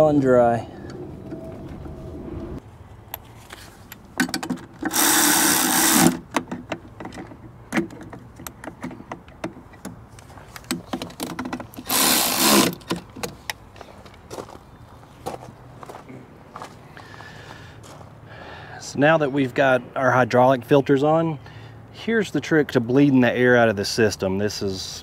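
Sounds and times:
cordless power tool running: 0:04.9 - 0:06.2, 0:11.8 - 0:12.8.

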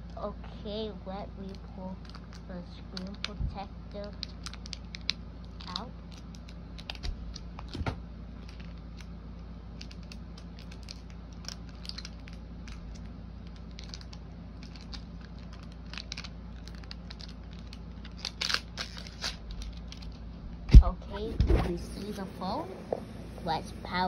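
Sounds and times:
steady low hum: 0:00.0 - 0:24.0
plastic packaging rustling: 0:09.7 - 0:20.4.

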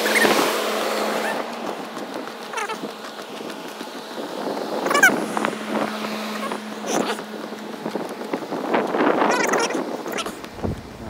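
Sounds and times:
hvac units humming: 0:00.0 - 0:11.0
wind on microphone: 0:00.0 - 0:11.0.

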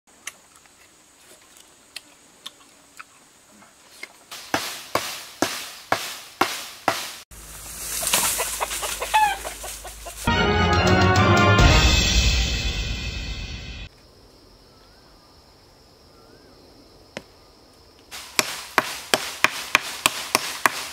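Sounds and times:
chicken clucking: 0:08.0 - 0:10.3
chicken squawks: 0:08.0 - 0:10.3.

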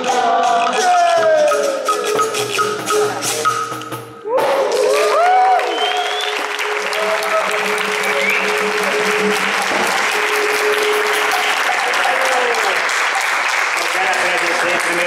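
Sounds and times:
crowd applauding: 0:04.4 - 0:15.0.

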